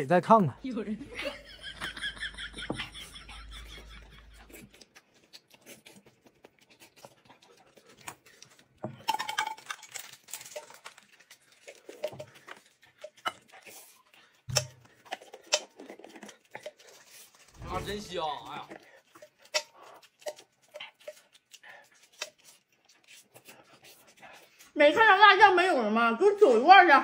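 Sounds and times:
chopsticks clinking against bowls: 0:09.0 - 0:13.8, 0:18.7 - 0:22.5.

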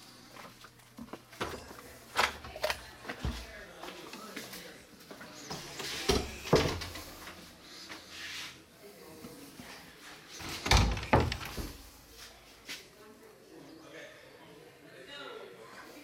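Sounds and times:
wooden door thudding: 0:10.6 - 0:11.8.

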